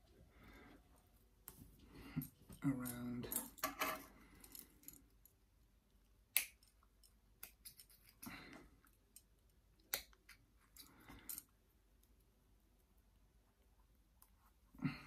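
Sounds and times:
soft handling noise: 0.0 - 5.4.

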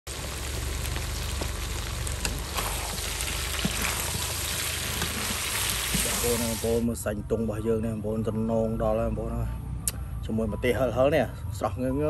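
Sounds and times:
oil popping: 0.1 - 6.8
food sizzling in hot oil: 0.1 - 6.9.

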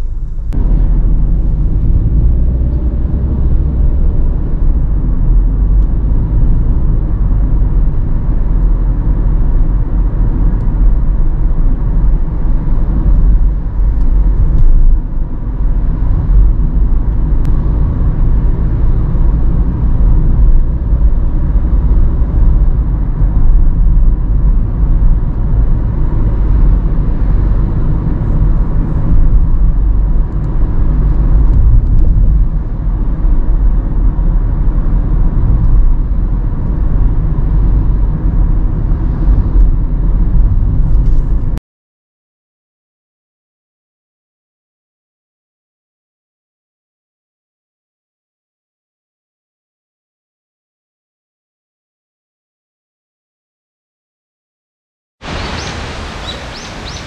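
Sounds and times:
engine and tyre rumble in car: 0.0 - 41.6, 55.2 - 57.0.

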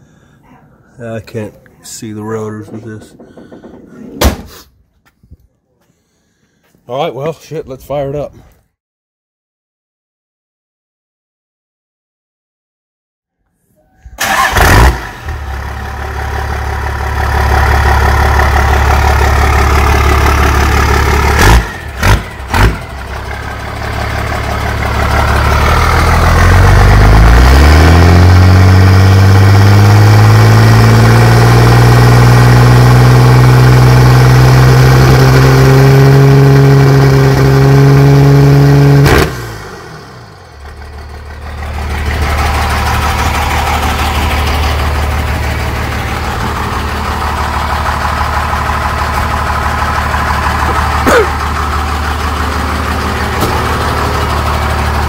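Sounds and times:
sharp engine knocks: 2.4 - 4.5, 53.3 - 53.9
diesel engine idling and revving: 14.1 - 55.0.

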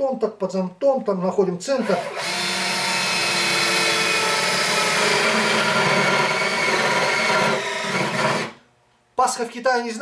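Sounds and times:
cordless drill boring into plywood: 1.8 - 8.6.

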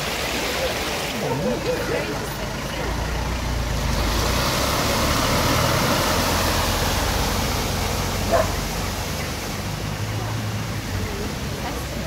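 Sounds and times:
water rushing and splashing: 0.0 - 12.0
low engine hum: 0.7 - 12.0.

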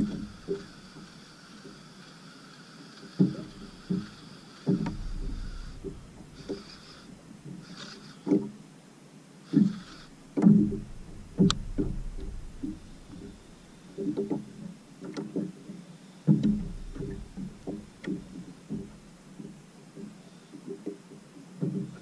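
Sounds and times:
short low rumbles: 4.7 - 7.2, 10.2 - 14.0, 16.3 - 19.4.

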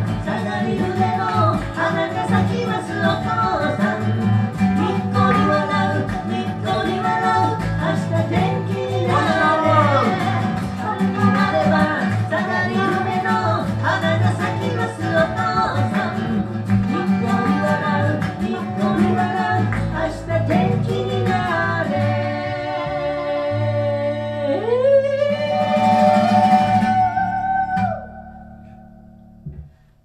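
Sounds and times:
band playing with singing: 0.0 - 24.1
voice holding long note: 23.2 - 29.0.

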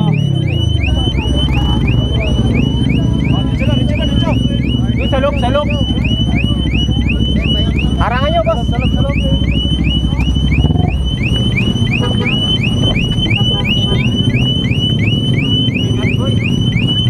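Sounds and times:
motorcycle engine idling: 0.0 - 17.0.

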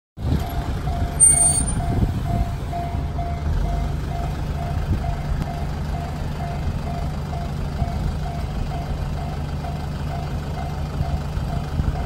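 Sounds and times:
low rumble: 0.2 - 9.4
level-crossing warning bell dinging: 0.4 - 12.0
brief high squeal: 1.2 - 1.8.

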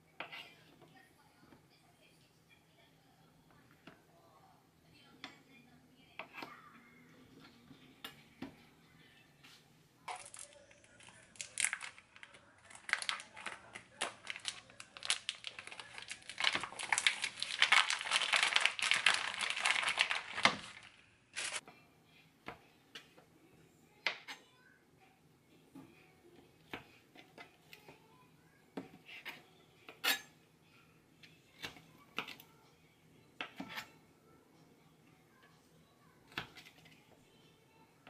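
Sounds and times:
plastic packaging crinkling and tearing: 10.1 - 21.6.

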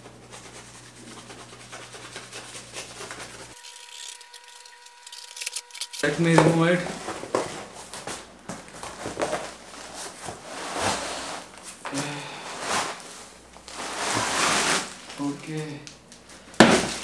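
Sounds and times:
cardboard box rustling and scraping: 8.8 - 11.5, 12.5 - 14.9.

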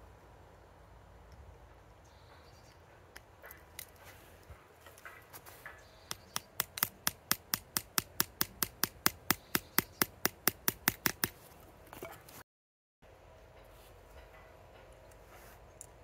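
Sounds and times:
small hammer tapping wire: 4.9 - 11.4.

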